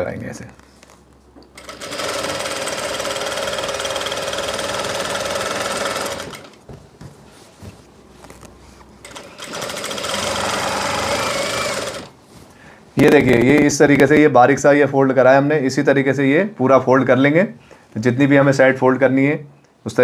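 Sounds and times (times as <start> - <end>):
sewing machine stitching: 1.6 - 6.6, 9.0 - 12.2.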